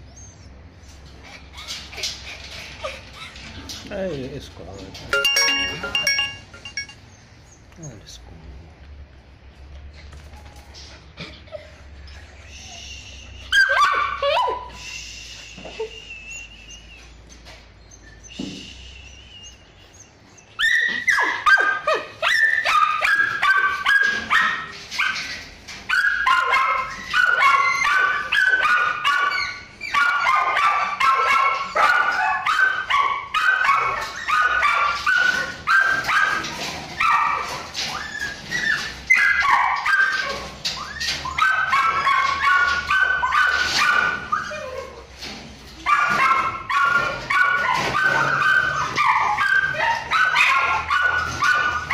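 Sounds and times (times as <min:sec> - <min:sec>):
dog whining: 0:00.2 - 0:03.7, 0:11.2 - 0:14.8, 0:15.6 - 0:25.1, 0:25.9 - 0:45.2, 0:45.8 - 0:51.9
dogs barking: 0:13.5 - 0:14.8, 0:19.5 - 0:45.0, 0:45.7 - 0:51.9.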